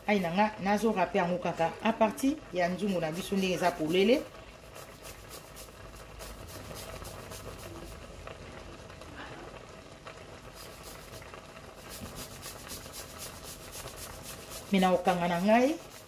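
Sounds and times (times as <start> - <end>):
garlic scraping on grater: 3.2 - 8.0, 10.6 - 16.0.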